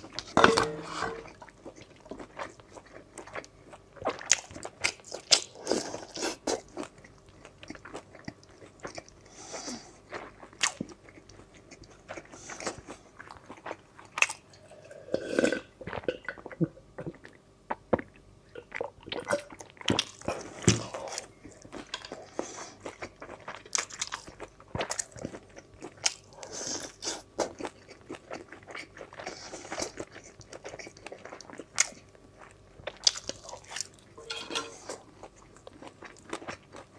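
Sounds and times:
wet chewing and lip-smacking: 1.3s - 9.3s, 16.4s - 34.1s.

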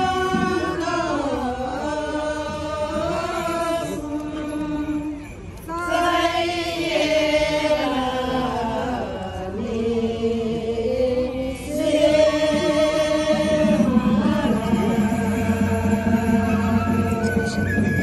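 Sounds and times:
group chanting in unison: 5.7s - 16.2s.

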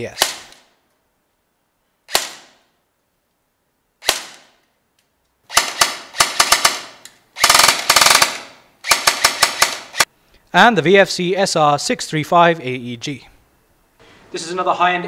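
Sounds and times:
airsoft gun firing: 2.1s - 2.7s, 4.0s - 4.6s, 5.5s - 10.1s.

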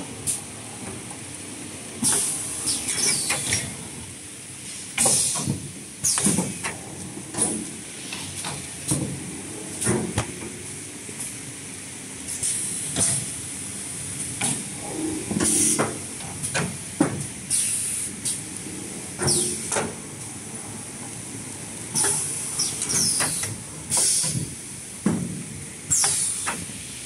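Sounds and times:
pneumatic air hisses: 4.7s - 6.3s, 17.5s - 18.4s, 22.0s - 24.4s, 25.9s - 26.6s
machine running hum: 14.0s - 16.5s.

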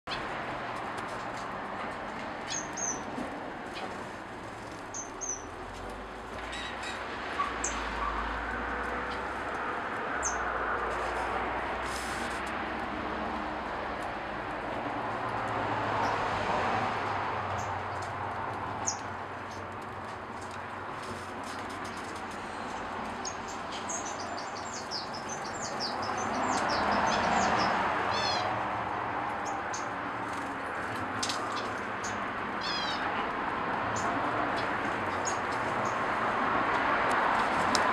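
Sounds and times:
finches chirping: 2.5s - 3.1s, 4.9s - 5.5s, 23.2s - 28.5s, 31.4s - 33.1s.

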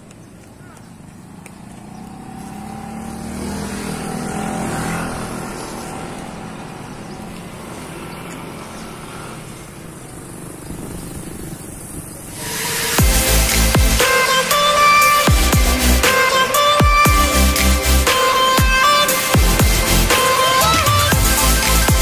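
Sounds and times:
vehicle engine passing by: 0.6s - 16.8s.

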